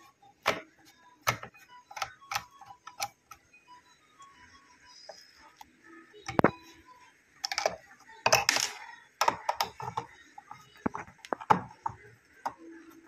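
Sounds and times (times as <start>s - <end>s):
screwdriver and plastic parts clicking: 7.4s - 10.1s.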